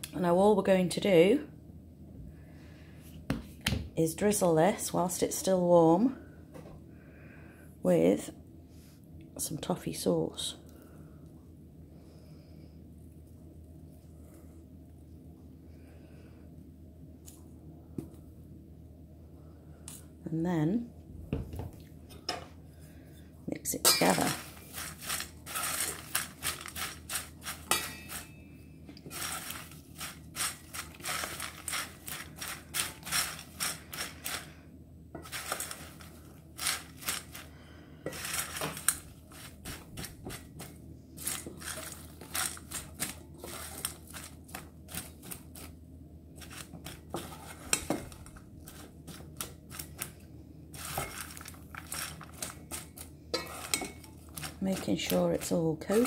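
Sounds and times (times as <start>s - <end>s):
spoon scraping metal pan: 23.8s - 28.4s, 53.3s - 56.0s.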